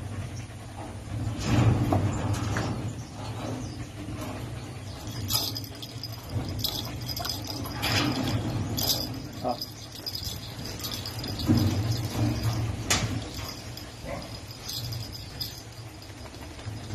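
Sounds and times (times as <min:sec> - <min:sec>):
low hum: 0:04.2 - 0:16.9
wire cage rattling: 0:04.3 - 0:16.9.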